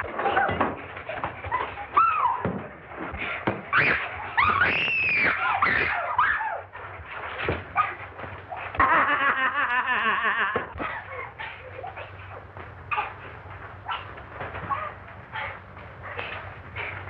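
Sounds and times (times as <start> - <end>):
women shrieking and screaming: 1.5 - 2.5, 3.7 - 6.8, 8.5 - 13.2.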